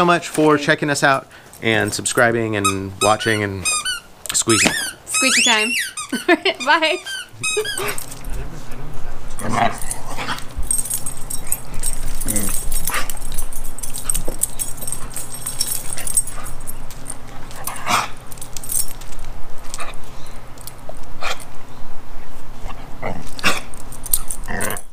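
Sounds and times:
squeaky dog toy squeaking: 2.6 - 8.0
dogs chewing: 7.0 - 21.6.

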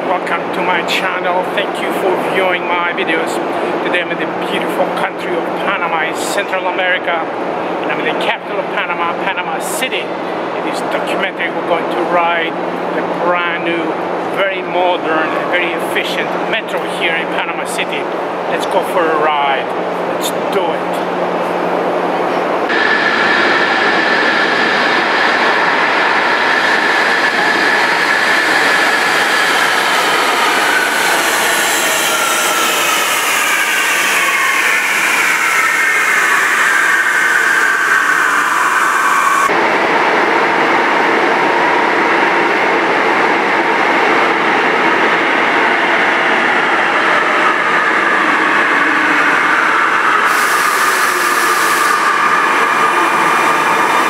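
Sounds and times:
electric train rolling with falling whine: 22.6 - 54.0.

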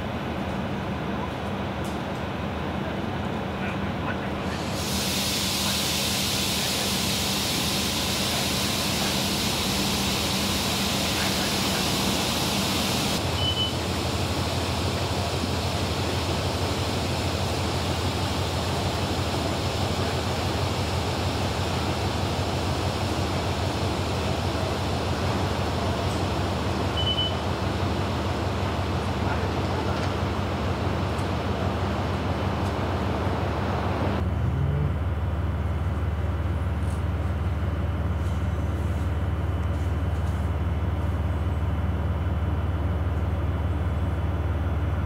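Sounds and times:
broad hiss: 4.5 - 13.2
short high beeps: 13.4 - 13.8.

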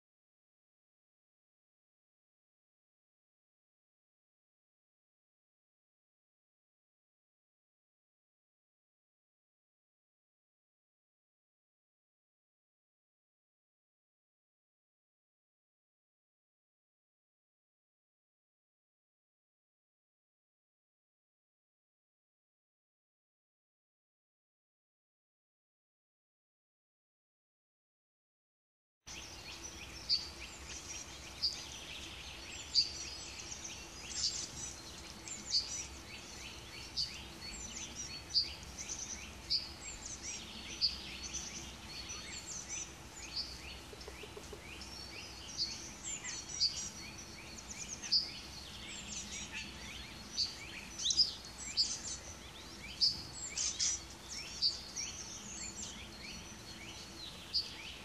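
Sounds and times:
songbirds chirping: 29.1 - 58.0.

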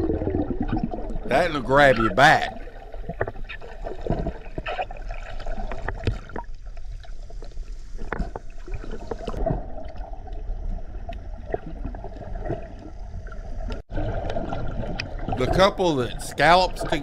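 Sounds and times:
underwater gurgling and bubbling: 0.0 - 15.6
small underwater clicks and knocks: 3.0 - 12.9.

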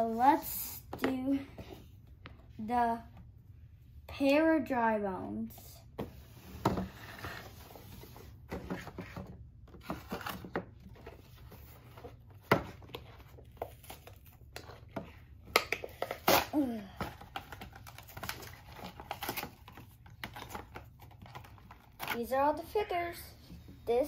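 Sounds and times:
plastic packaging tearing and crinkling: 16.0 - 22.2.

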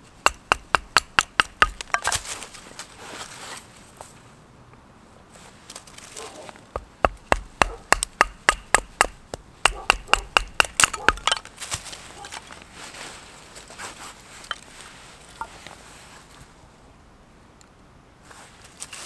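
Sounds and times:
soft handling sounds: 5.3 - 6.7, 11.4 - 16.7, 18.2 - 19.0.

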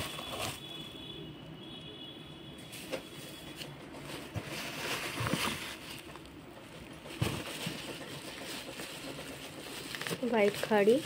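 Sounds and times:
cardboard rustling: 0.0 - 0.7, 3.6 - 6.3, 7.0 - 11.0
plastic bags crinkling: 3.4 - 11.0.

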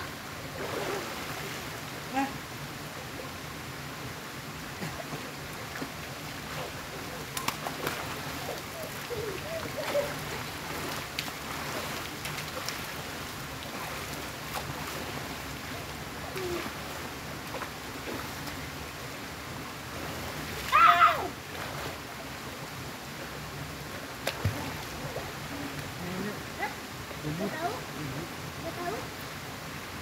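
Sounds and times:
rushing water: 0.0 - 30.0
children splashing water: 6.4 - 15.4
children shouting: 20.7 - 21.3.

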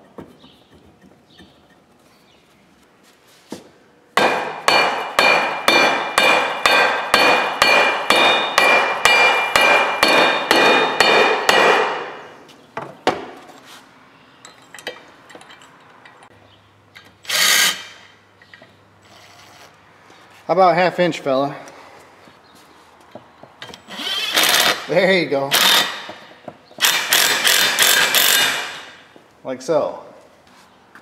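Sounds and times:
cordless impact driver: 17.2 - 18.0, 23.9 - 24.9, 25.5 - 26.2, 26.8 - 29.0.

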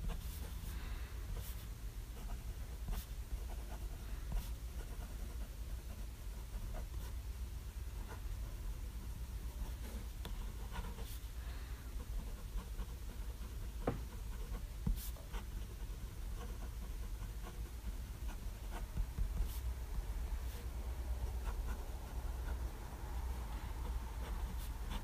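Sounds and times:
steady low hum: 0.0 - 25.0
fountain pen scratching on paper: 2.2 - 7.1, 9.5 - 11.3, 12.0 - 19.6, 20.5 - 22.7, 23.8 - 25.0.

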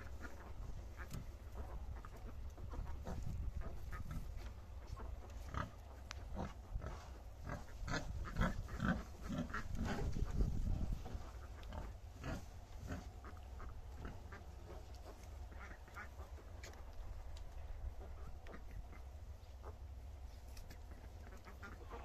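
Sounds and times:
low steady rumble: 0.0 - 22.0
sow grunting: 5.1 - 15.2.

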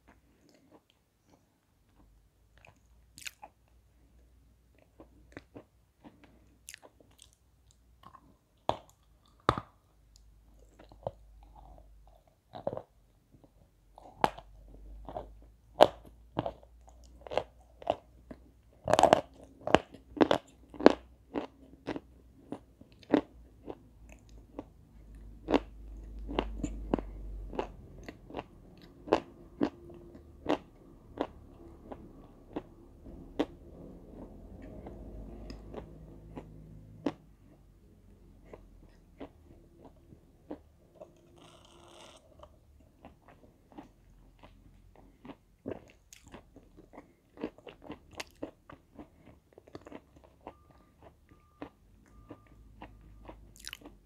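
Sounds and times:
chalk being chewed crunching: 10.6 - 37.7, 52.4 - 54.0.

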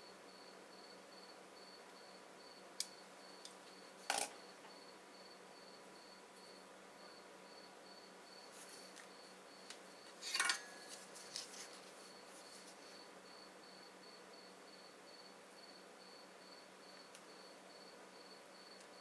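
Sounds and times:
small objects clattering on workbench: 4.1 - 4.4, 10.2 - 11.8.

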